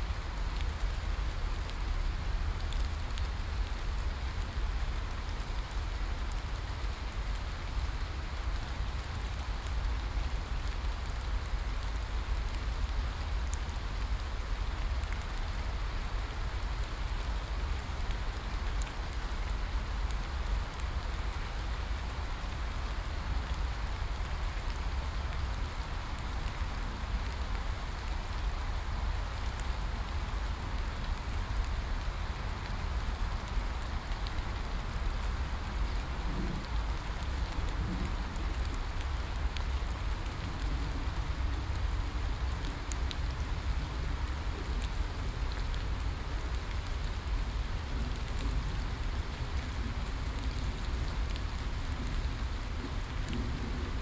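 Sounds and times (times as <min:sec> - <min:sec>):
heavy rain on leaves: 0:00.0 - 0:54.0.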